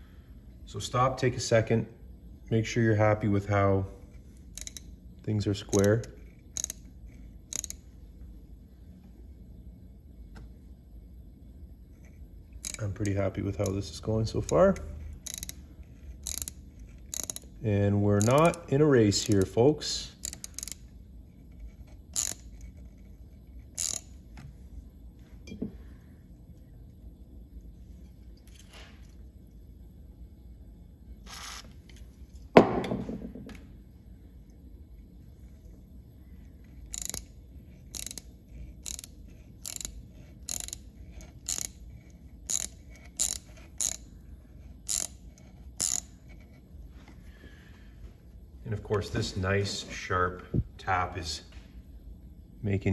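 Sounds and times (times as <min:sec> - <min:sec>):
ratchet clicking: 0:04.5 - 0:05.0, 0:05.6 - 0:07.9, 0:12.6 - 0:20.9, 0:21.7 - 0:23.0, 0:23.6 - 0:24.2, 0:36.7 - 0:44.2, 0:44.8 - 0:46.4.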